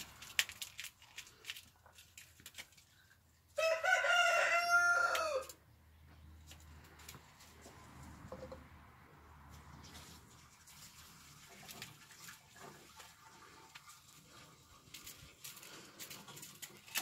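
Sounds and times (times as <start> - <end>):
rooster crowing: 3.6 - 5.6.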